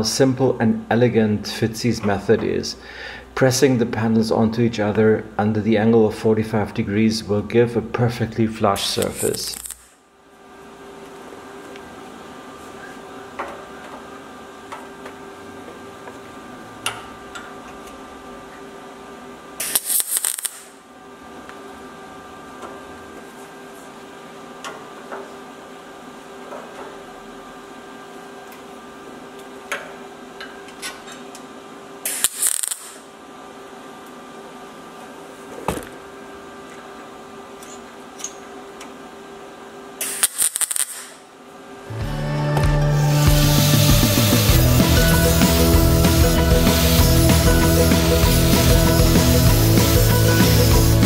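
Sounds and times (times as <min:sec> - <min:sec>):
steady hum: 0:00.0 - 0:51.0
welding arc crackling: 0:08.8 - 0:10.0, 0:19.6 - 0:20.8, 0:32.1 - 0:33.0, 0:40.0 - 0:41.2, 0:42.9 - 0:51.0.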